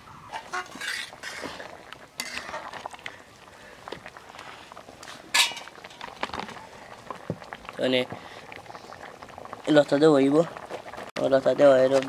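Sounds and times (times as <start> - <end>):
curry bubbling in a pan: 0.4 - 12.0
metal lid clinking on pan: 5.4 - 5.7.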